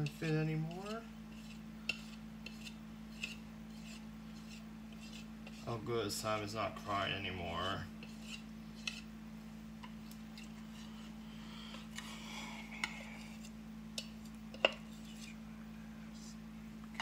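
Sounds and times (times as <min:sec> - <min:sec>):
utensil scraping a mixing bowl: 0:00.0 - 0:09.1, 0:10.0 - 0:11.2, 0:12.7 - 0:15.4
steady low hum: 0:00.0 - 0:17.0.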